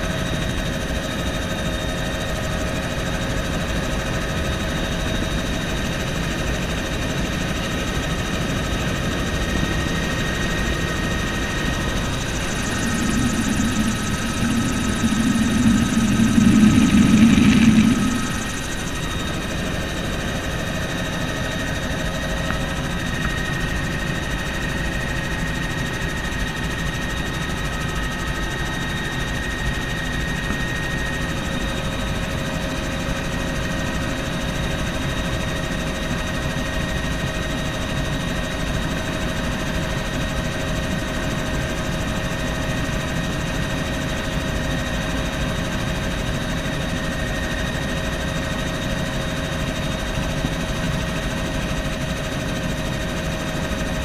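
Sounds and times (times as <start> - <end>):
helicopter engine and rotor drone: 0.0 - 54.0
constant whines: 11.6 - 19.5.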